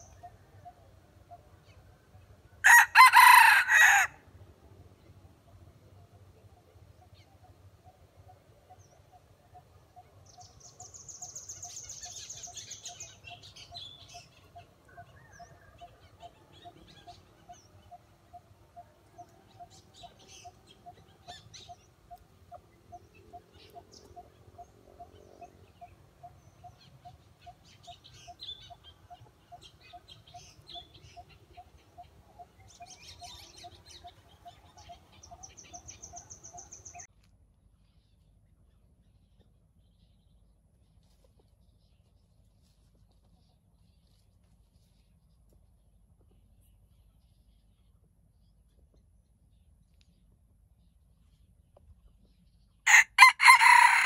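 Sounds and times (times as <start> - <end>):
birds chirping: 8.7 - 37.1.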